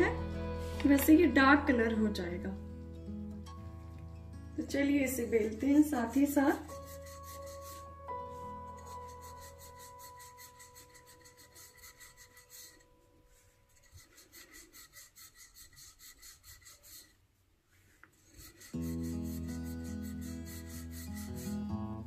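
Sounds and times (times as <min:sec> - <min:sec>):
background music: 0:00.0 - 0:14.0, 0:18.6 - 0:22.0
rolling pin rubbing over dough: 0:06.7 - 0:21.7.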